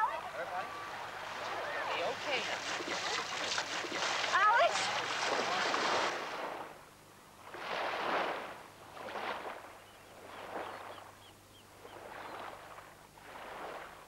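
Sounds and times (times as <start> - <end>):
water surging and splashing: 0.0 - 9.7.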